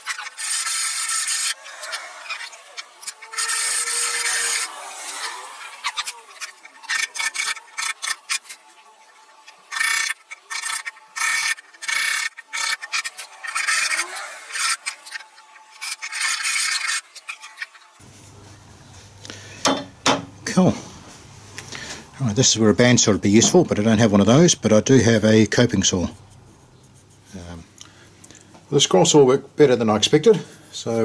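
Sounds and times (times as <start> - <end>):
rasp rubbing on wood: 0.0 - 17.8.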